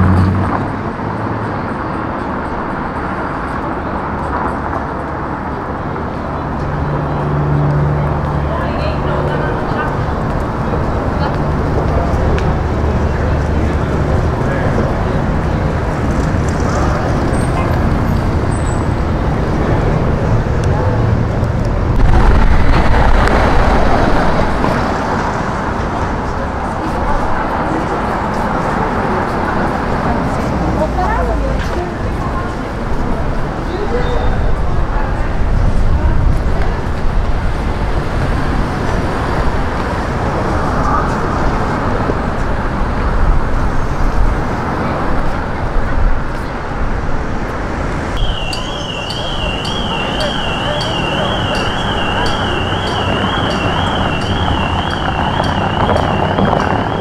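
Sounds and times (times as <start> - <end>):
street traffic: 0.0 - 57.0
vehicle passing close: 6.4 - 33.2, 46.7 - 57.0
warbling siren: 48.2 - 57.0.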